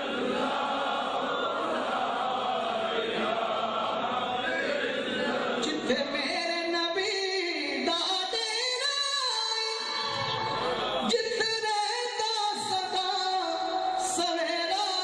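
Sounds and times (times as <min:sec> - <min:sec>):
voices chanting together: 0:00.0 - 0:06.0.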